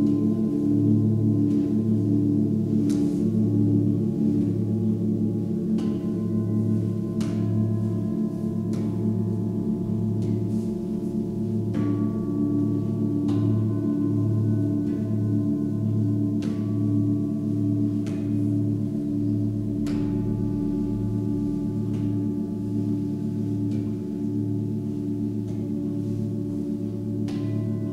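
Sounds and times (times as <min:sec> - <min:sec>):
singing bowls ringing: 0:00.0 - 0:27.9.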